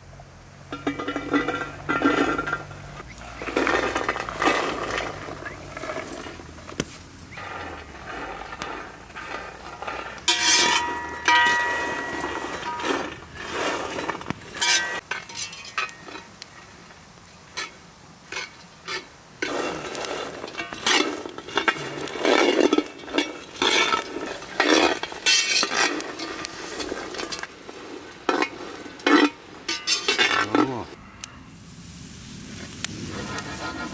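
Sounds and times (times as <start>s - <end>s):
metal spatula scraping a pan: 0.7s - 6.7s, 7.4s - 16.7s, 17.5s - 30.8s, 33.0s - 33.9s
nuts clattering against a pan: 0.7s - 6.8s, 7.4s - 16.6s, 17.6s - 30.8s.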